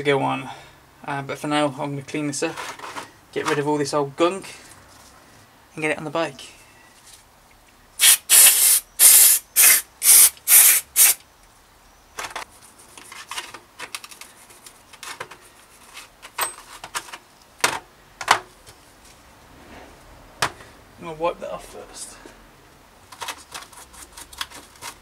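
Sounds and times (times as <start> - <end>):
aerosol spray bursts: 8.0 - 11.2.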